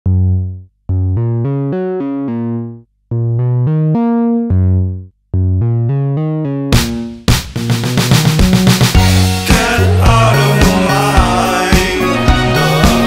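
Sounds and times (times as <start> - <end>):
synth trumpet melody: 12.0 - 13.0.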